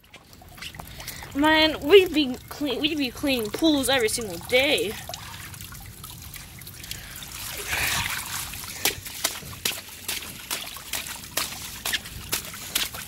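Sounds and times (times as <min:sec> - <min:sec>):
water swishing: 0:00.0 - 0:13.0
flip-flops splashing steps: 0:06.4 - 0:13.0.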